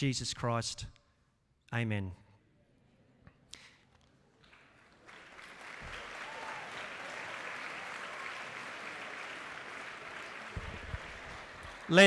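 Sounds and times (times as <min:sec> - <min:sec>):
large audience clapping: 0:04.4 - 0:12.0.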